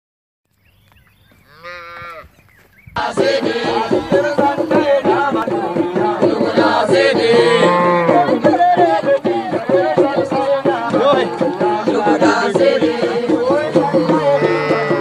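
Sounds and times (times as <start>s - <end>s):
cow mooing: 1.5s - 2.3s, 7.3s - 8.4s, 14.2s - 15.0s.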